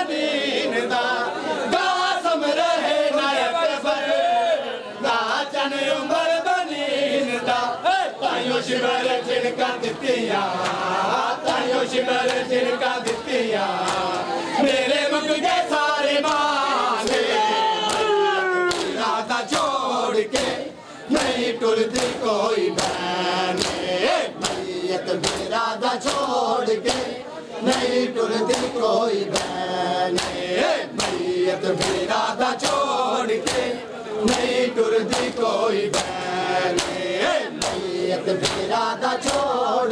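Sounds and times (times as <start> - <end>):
crowd of men chanting: 0.0 - 39.9
hands slapping chests: 12.2 - 14.3, 16.2 - 19.8, 21.2 - 22.2, 22.8 - 27.9, 28.5 - 32.0, 32.6 - 33.7, 34.3 - 37.0, 37.6 - 39.6.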